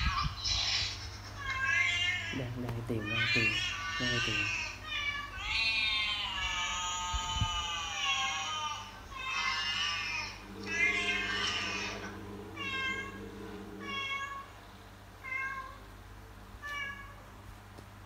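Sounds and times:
cat meowing: 13.8s - 14.5s.

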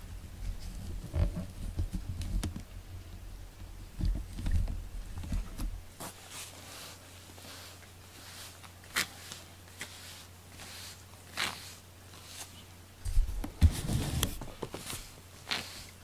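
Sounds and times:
brushing rustles: 0.3s - 3.0s, 4.2s - 16.0s
cat rubbing against microphone: 6.3s - 16.0s.

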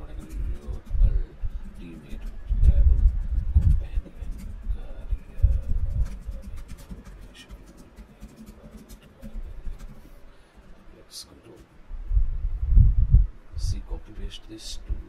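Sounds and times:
dull low thumps: 2.3s - 6.5s, 11.9s - 13.9s.

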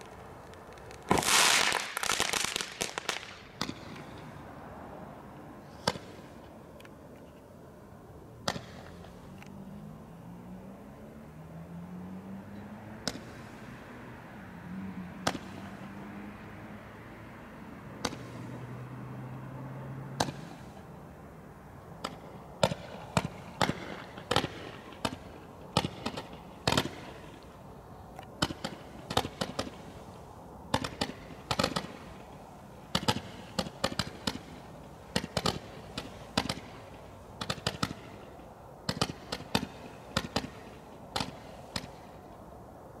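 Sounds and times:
fireworks cracking and popping: 0.0s - 4.3s, 22.0s - 27.6s, 28.4s - 30.0s, 30.7s - 42.2s.

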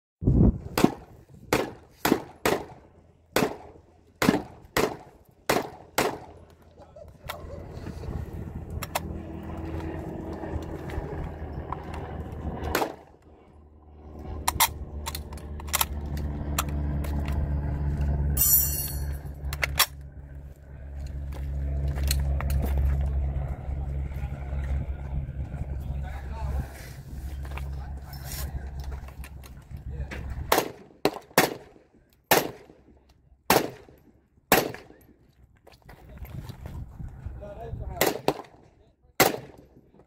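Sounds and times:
rifle shots: 0.8s - 2.8s, 3.4s - 6.3s, 32.3s - 32.7s, 33.5s - 33.9s, 34.5s - 35.0s, 39.2s - 39.6s
low rumble: 6.3s - 30.6s.

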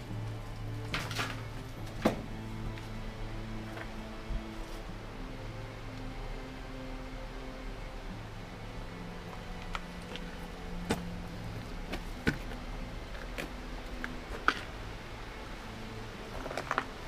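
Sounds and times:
ambient music drone: 0.0s - 17.0s
twigs snapping under footsteps: 0.2s - 3.0s, 9.3s - 14.8s.

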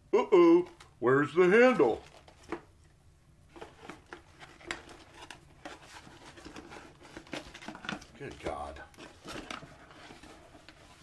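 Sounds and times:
hands rummaging through boxes: 3.5s - 11.0s.

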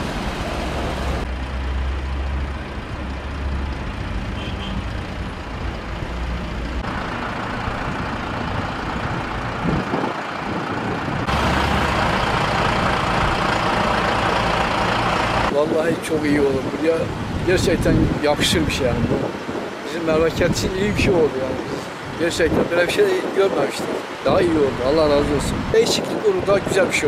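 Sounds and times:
truck diesel engine running: 0.0s - 16.2s
road noise: 0.0s - 27.0s.

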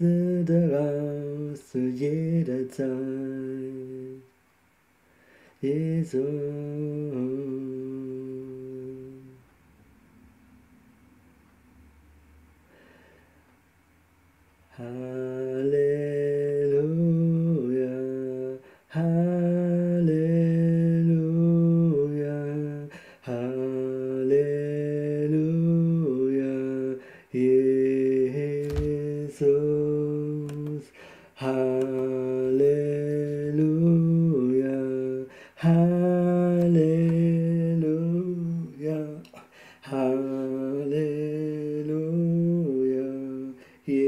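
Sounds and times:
man humming a slow melody: 5.6s - 9.5s, 14.7s - 44.0s.

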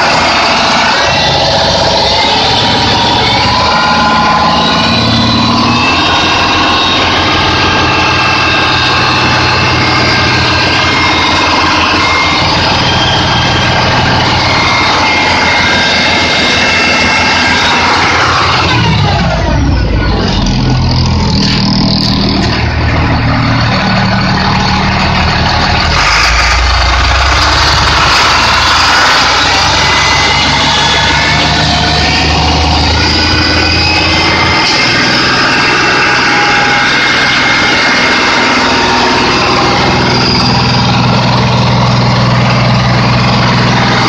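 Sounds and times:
diesel engine running: 0.0s - 44.0s
engine whine: 0.0s - 44.0s.

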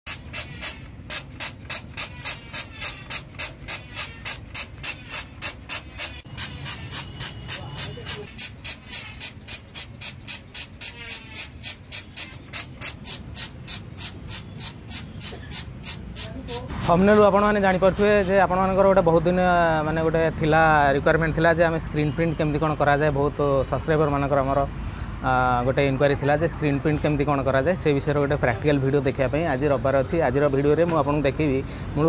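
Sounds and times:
spray bottle hissing squirts: 0.1s - 18.2s.

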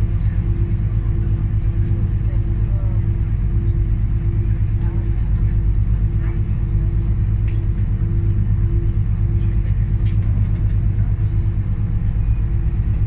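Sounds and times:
boat engine droning: 0.0s - 13.0s.

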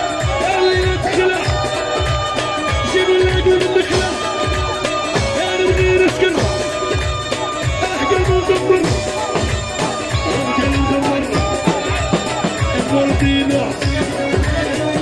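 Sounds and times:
bending melody line: 0.0s - 15.0s
heavy drum beat: 0.0s - 15.0s.

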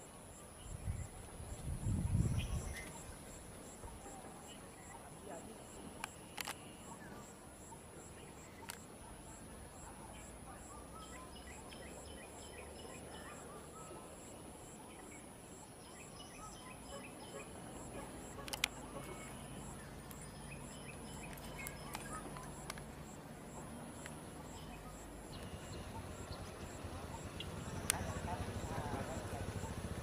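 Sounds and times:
birds chirping: 8.0s - 30.0s.

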